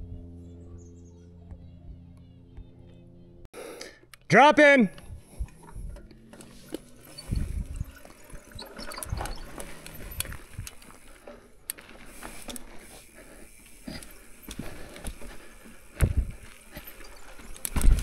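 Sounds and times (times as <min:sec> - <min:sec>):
sharp clicks and rattles: 0:04.9 - 0:18.0
bike thudding over bumps: 0:05.0 - 0:18.0
bike tyres rolling on dirt: 0:05.0 - 0:18.0.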